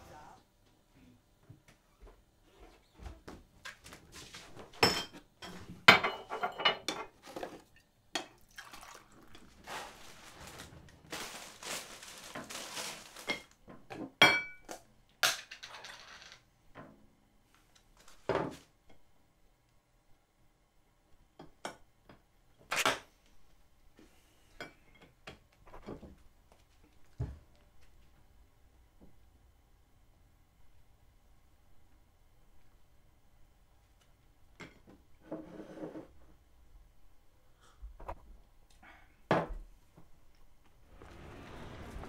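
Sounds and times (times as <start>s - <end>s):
crockery knocking and clinking: 4.7s - 7.2s, 13.2s - 16.3s
plastic bag rustling: 8.6s - 13.7s, 40.8s - 42.0s.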